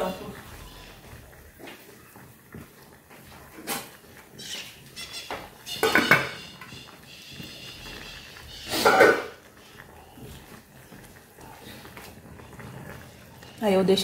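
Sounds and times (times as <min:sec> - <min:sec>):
lid clattering on metal pot: 0:05.3 - 0:06.4.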